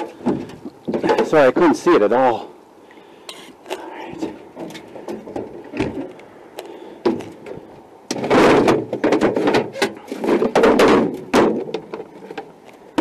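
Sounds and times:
boat hatch knocks and clunks: 8.1 - 12.0.

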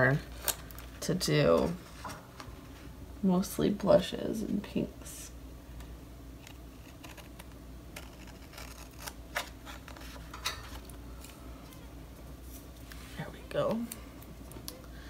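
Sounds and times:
scissors snipping paper: 6.4 - 10.1
paper rustling: 6.4 - 11.4.

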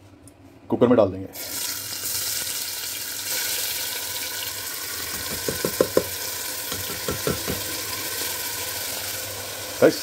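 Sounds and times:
masala sizzling in hot oil: 1.4 - 10.0
plastic bowl knocking on cooker: 5.1 - 7.8.

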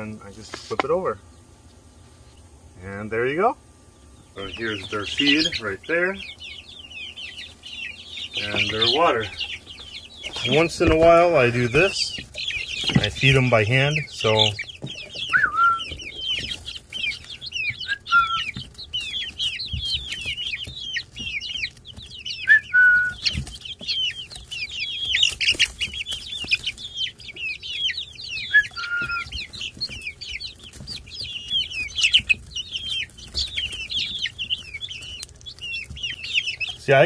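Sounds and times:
chicks peeping: 0.0 - 37.0
low drawn-out chick call: 15.2 - 16.0, 28.4 - 29.4.

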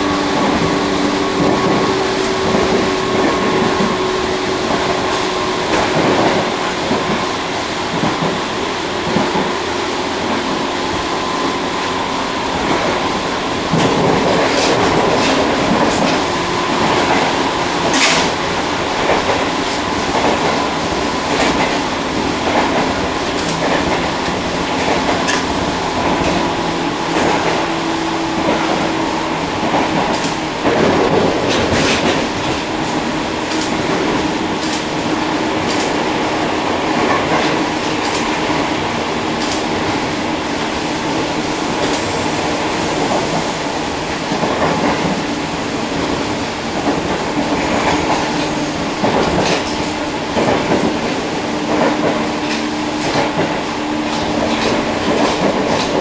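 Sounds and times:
train rumbling at speed: 0.0 - 56.0.

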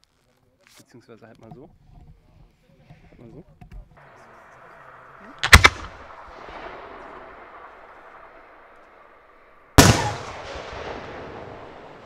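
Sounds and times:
firework mortar launch bang: 4.1 - 12.0.

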